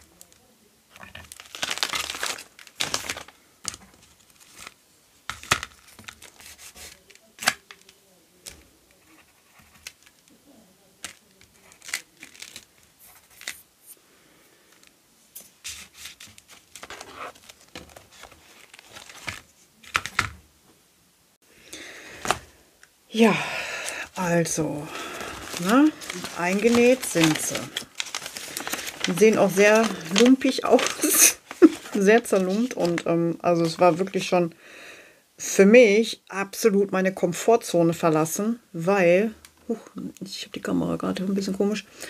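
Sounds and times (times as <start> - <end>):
paper pages rustling: 1.0 - 10.4, 11.0 - 14.0, 14.7 - 20.4, 22.1 - 22.5, 23.7 - 34.3.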